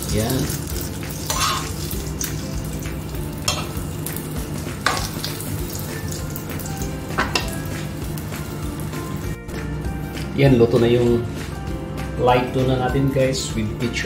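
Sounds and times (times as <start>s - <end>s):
omelette sizzling in a pan: 0.0s - 9.3s
utensils scraping and knocking pan: 1.2s - 1.8s.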